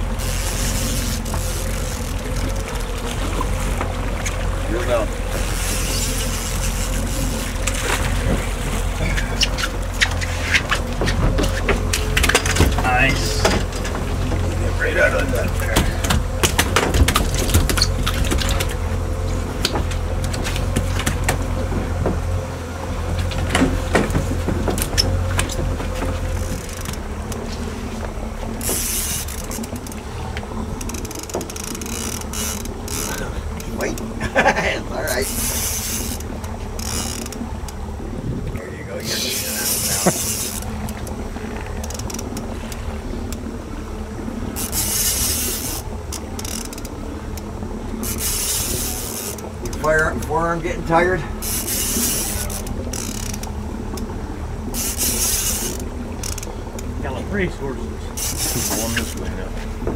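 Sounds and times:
splashes and knocks: 0:00.0 - 0:38.6
boat engine running: 0:00.0 - 0:59.9
water washing along hull: 0:00.0 - 0:59.9
fishing reel clicking: 0:00.1 - 0:03.0, 0:05.3 - 0:07.8, 0:28.6 - 0:30.0, 0:30.8 - 0:34.1, 0:35.0 - 0:37.8, 0:39.1 - 0:43.4, 0:44.6 - 0:50.4, 0:51.4 - 0:54.1, 0:54.7 - 0:56.9, 0:58.2 - 0:59.2.

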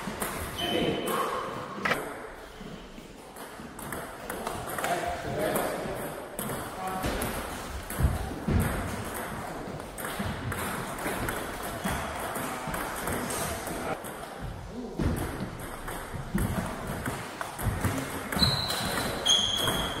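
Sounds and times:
sneaker squeak on wooden floor: 0:18.3 - 0:20.0.

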